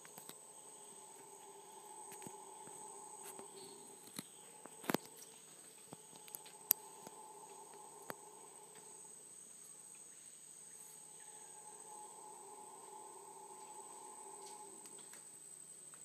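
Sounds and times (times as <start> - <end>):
low steady drone: 0.0 - 15.8
insects droning: 0.0 - 16.0.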